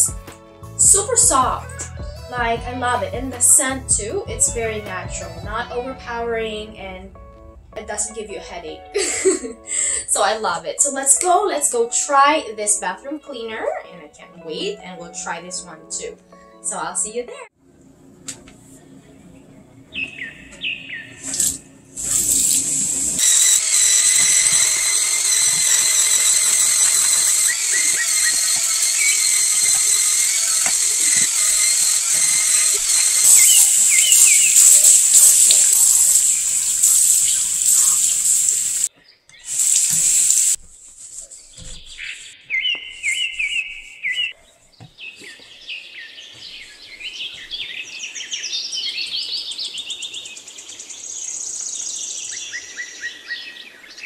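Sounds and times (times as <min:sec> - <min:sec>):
electric spin scrubber whining: 0:21.1 - 0:38.9, 0:39.5 - 0:40.6.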